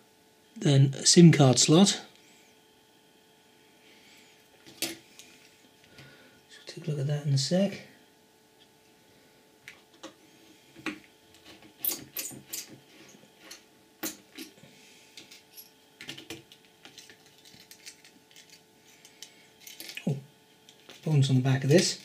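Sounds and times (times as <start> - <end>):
small parts clicking and tapping: 15.2 - 21.1.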